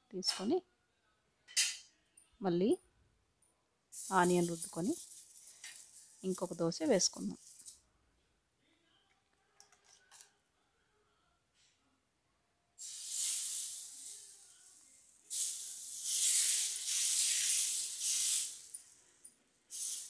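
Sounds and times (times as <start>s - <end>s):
batter sizzling on hot pan: 12.8s - 18.7s.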